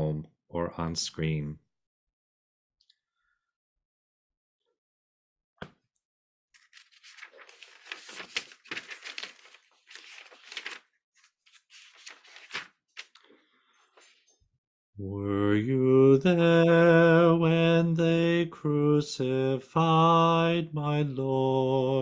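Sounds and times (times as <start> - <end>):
paper rustling and crinkling: 6.6 - 13.3.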